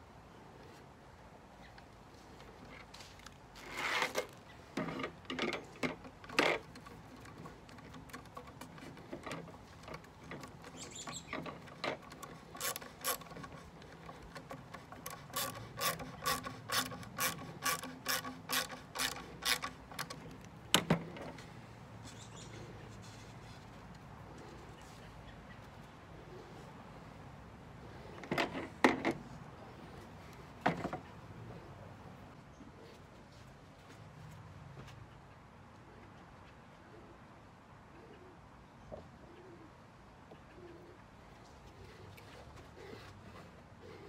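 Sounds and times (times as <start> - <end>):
ratcheting screwdriver clicking: 11.7 - 20.5.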